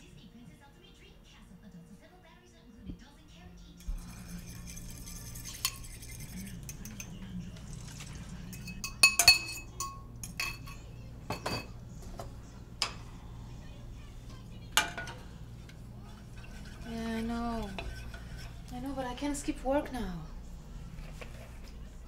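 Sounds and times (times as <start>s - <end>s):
low steady hum: 0.0s - 22.0s
utensil clinking against bowl: 3.8s - 11.8s, 14.8s - 18.7s.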